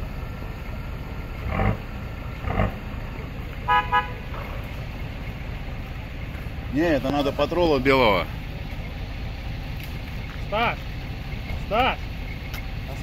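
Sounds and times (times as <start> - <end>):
engine rumbling: 0.0 - 13.0
vehicle horn toots: 3.6 - 4.4.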